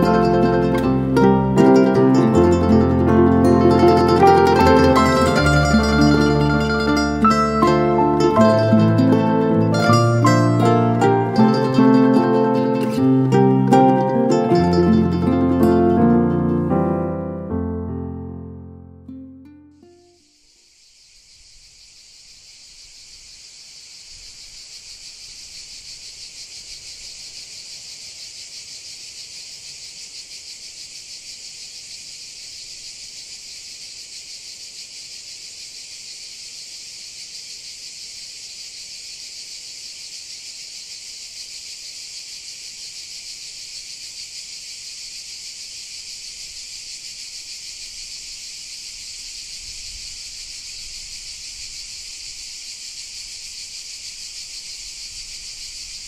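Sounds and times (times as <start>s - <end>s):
cicadas buzzing: 0.0s - 16.6s, 19.8s - 56.0s.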